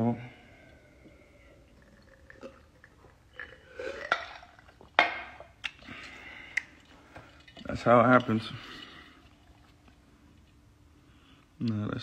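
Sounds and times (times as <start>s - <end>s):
swallowing: 0.7s - 4.9s.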